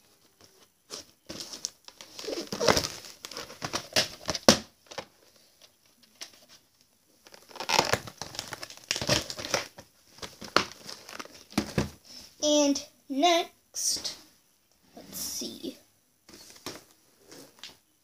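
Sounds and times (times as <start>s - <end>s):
plastic case clicking and rustling: 1.3s - 6.4s, 7.3s - 12.0s.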